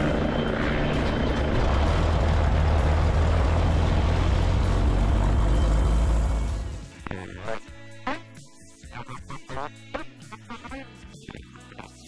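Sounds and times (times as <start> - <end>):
propeller plane engine droning: 0.0 - 7.0.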